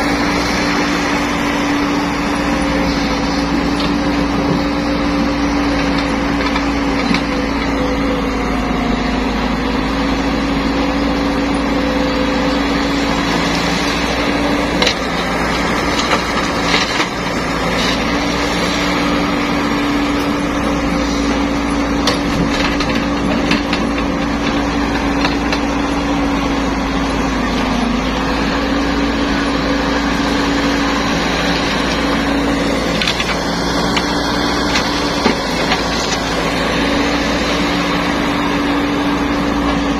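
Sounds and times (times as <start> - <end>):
excavator diesel engine: 0.0 - 39.9.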